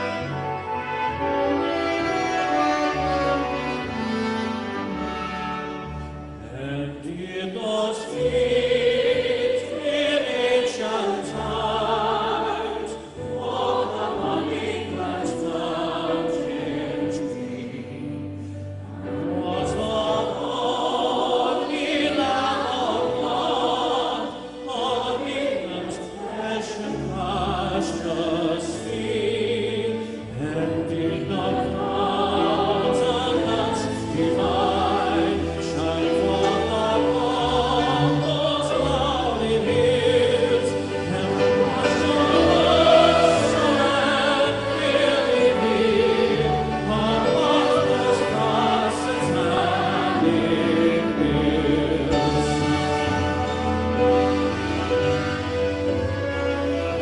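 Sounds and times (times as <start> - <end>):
grand piano: 0.0 - 57.0
singers in harmony: 0.0 - 57.0
band accompaniment: 39.4 - 57.0.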